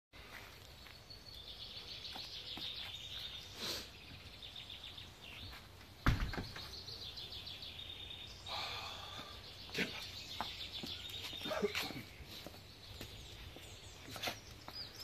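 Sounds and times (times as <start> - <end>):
background noise: 0.2 - 15.0
sudden thump: 6.0 - 6.6.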